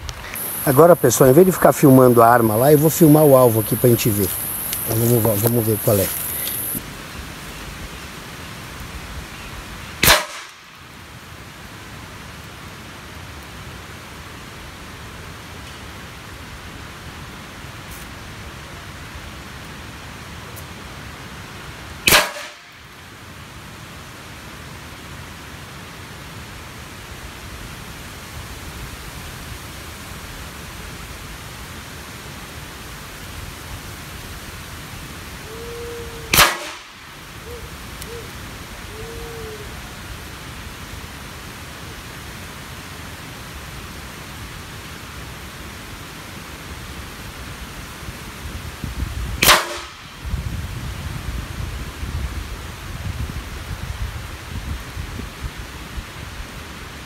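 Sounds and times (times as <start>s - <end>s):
wind and rustling leaves: 0.0s - 57.0s
air rifle shots: 10.0s - 10.6s, 22.1s - 22.6s, 36.3s - 36.9s, 49.4s - 50.0s.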